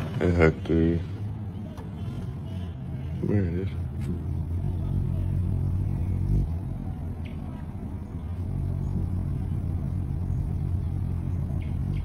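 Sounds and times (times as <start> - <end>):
hummingbird wings humming: 3.1 - 12.0.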